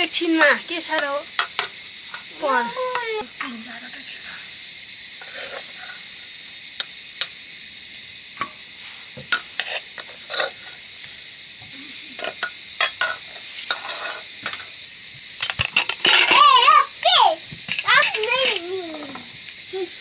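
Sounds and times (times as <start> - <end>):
high-pitched hiss: 0.0 - 20.0.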